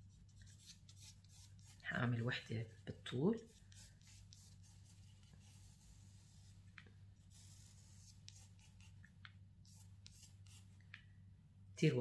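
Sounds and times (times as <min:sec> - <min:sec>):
low steady hum: 0:00.0 - 0:12.0
pencil scratching on paper: 0:00.4 - 0:01.8, 0:03.4 - 0:06.5, 0:07.3 - 0:09.0, 0:09.6 - 0:10.7.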